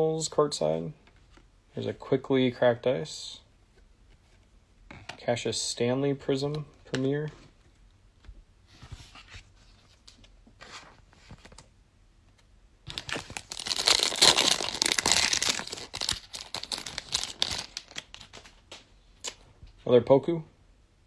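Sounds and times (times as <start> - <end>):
foil card pack tearing and crinkling: 12.9 - 18.6.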